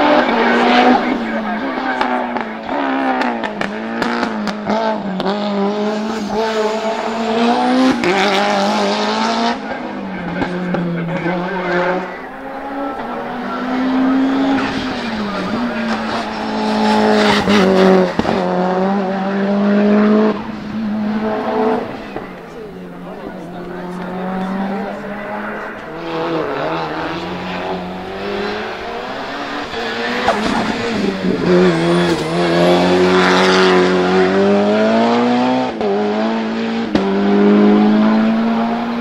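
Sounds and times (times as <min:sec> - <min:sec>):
race car engines revving hard: 0:00.0 - 0:39.0.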